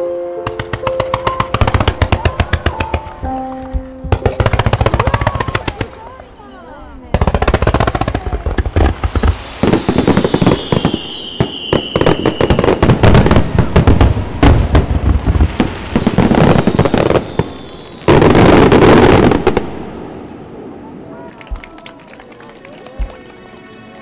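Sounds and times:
firework bursts and crackles: 0:00.5 - 0:24.0
firework whistle gliding down: 0:09.2 - 0:13.5, 0:15.5 - 0:19.6.

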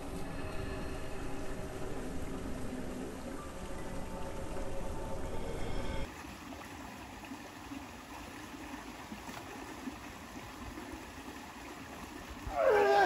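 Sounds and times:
stream flowing over rocks: 0:06.1 - 0:13.0
person crying out: 0:12.5 - 0:13.0.

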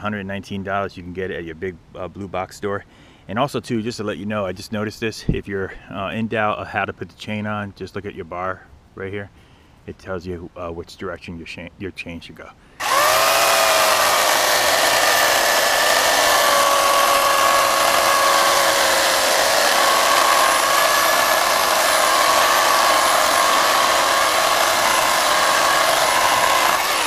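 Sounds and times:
electric chainsaw cutting log: 0:12.8 - 0:27.0.

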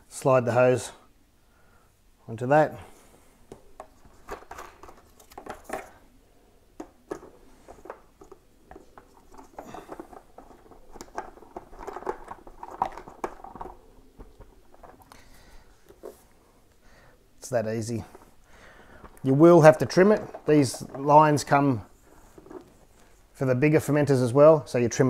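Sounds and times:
plastic clicks and rubbing: 0:03.5 - 0:06.0, 0:06.8 - 0:16.2, 0:19.0 - 0:21.1, 0:22.3 - 0:23.1.

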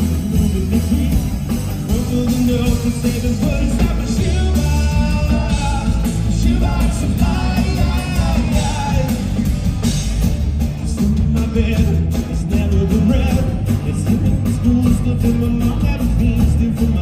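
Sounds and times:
man singing: 0:00.0 - 0:09.6, 0:10.6 - 0:17.0
live rock band playing: 0:00.0 - 0:17.0.

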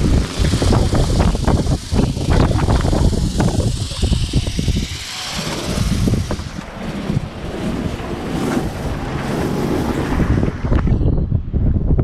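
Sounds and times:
choppy sea rushing: 0:00.0 - 0:10.9
wind buffeting microphone: 0:00.0 - 0:12.0.

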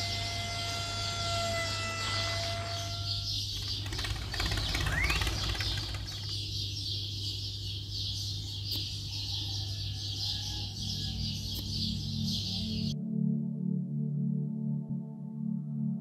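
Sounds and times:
constant low hum: 0:00.0 - 0:10.0
high-pitched pulsing chirping: 0:00.0 - 0:13.0.

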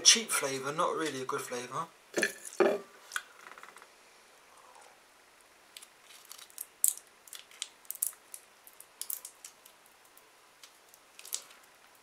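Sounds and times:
candy wrapper crinkling: 0:05.7 - 0:11.7.

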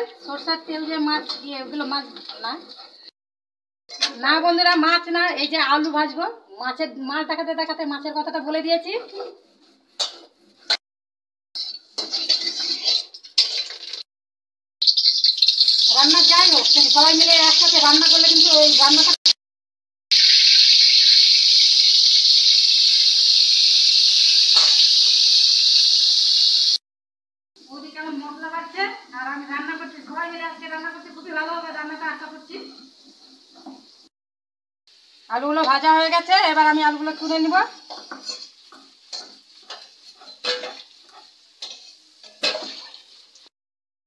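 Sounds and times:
potatoes sizzling in hot oil: 0:00.0 - 0:03.1, 0:11.6 - 0:14.1, 0:14.8 - 0:19.3, 0:20.1 - 0:26.8, 0:27.7 - 0:34.1, 0:34.9 - 0:43.5
metal spatula scraping steel pan: 0:02.1 - 0:03.1, 0:03.9 - 0:04.2, 0:09.0 - 0:10.8, 0:11.6 - 0:14.0, 0:37.0 - 0:43.0
oil crackle: 0:13.0 - 0:14.1, 0:14.8 - 0:19.3, 0:20.1 - 0:26.8.

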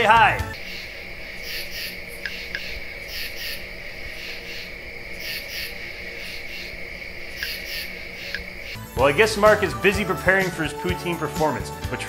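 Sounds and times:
crickets chirping: 0:00.5 - 0:08.8.

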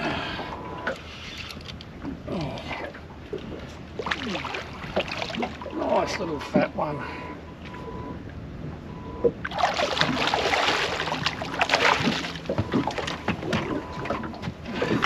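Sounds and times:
fish thrashing and splashing: 0:00.9 - 0:06.3, 0:09.4 - 0:15.0.

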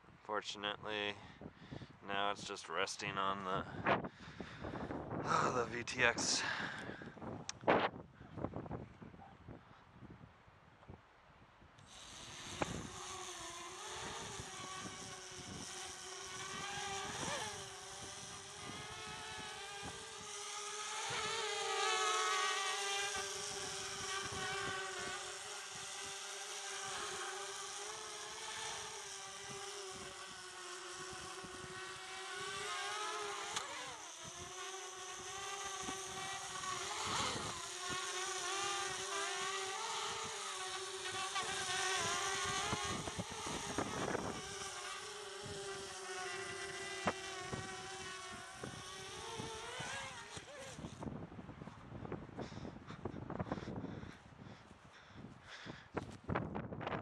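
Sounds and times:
drone propellers whining: 0:03.1 - 0:07.9, 0:11.8 - 0:51.3
wind buffeting microphone: 0:41.4 - 0:44.8, 0:47.0 - 0:57.0.

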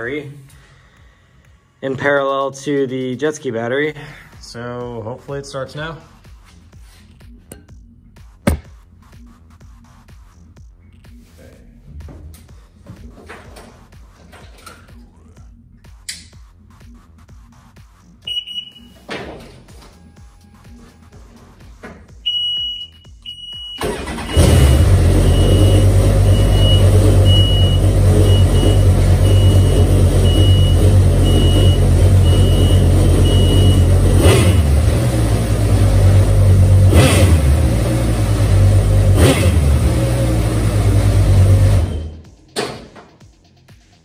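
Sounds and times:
high beep: 0:18.2 - 0:19.0, 0:22.2 - 0:24.6, 0:25.2 - 0:34.0
jet ski engine starting and idling: 0:23.8 - 0:42.2.

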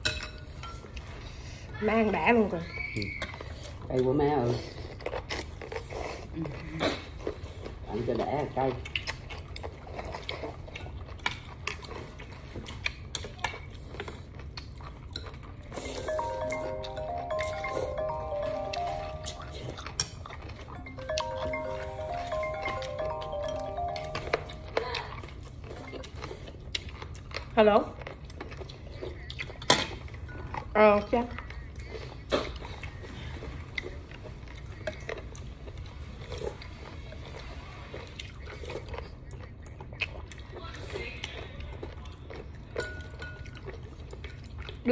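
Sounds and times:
quiet chewing: 0:02.8 - 0:16.1, 0:19.3 - 0:21.0, 0:24.7 - 0:44.9.

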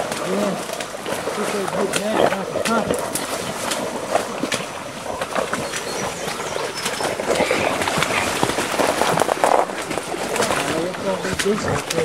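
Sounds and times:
brush rustling and snapping: 0:06.9 - 0:12.0.

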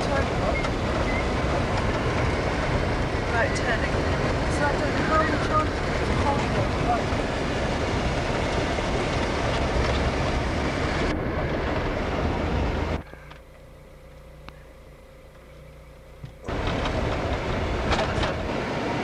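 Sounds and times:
low steady hum: 0:00.0 - 0:19.0
vehicle road rumble and wind: 0:00.0 - 0:19.0.

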